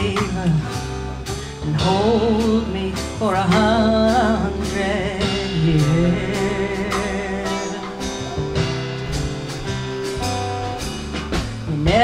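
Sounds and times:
woman singing with vibrato: 0:00.0 - 0:00.8, 0:01.6 - 0:08.2, 0:11.7 - 0:12.0
live band playing slow song: 0:00.0 - 0:12.0.

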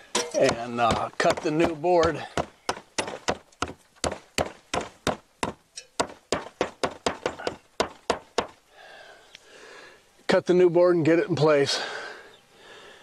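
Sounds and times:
hammer striking wood: 0:00.3 - 0:08.6.

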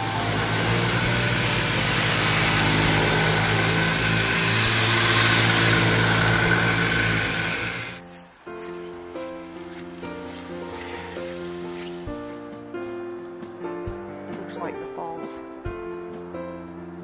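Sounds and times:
snowmobiles riding by: 0:00.0 - 0:08.2, 0:09.2 - 0:12.9.

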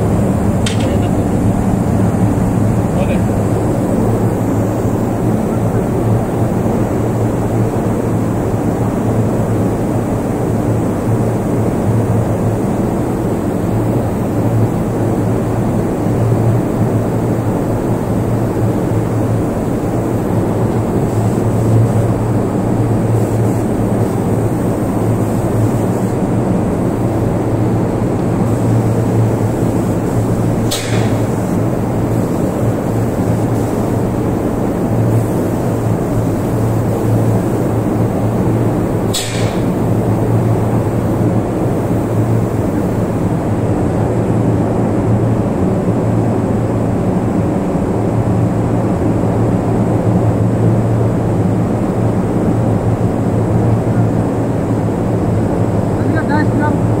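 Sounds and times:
sharp click: 0:00.6 - 0:01.0, 0:30.7 - 0:31.2, 0:39.1 - 0:39.7
paint sprayer running: 0:18.0 - 0:43.2.

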